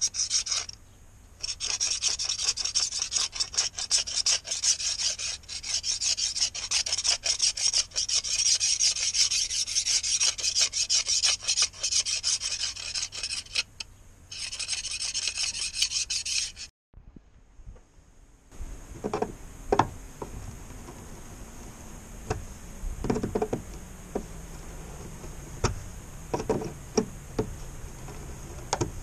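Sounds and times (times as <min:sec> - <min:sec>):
knife scraping paint: 0:00.0 - 0:00.8, 0:01.4 - 0:16.7.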